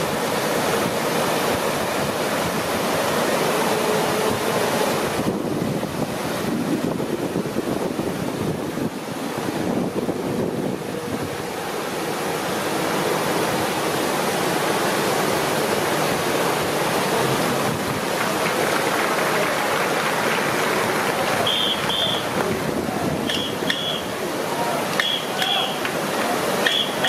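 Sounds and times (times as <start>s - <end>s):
river water rushing over weir: 0.0s - 27.0s.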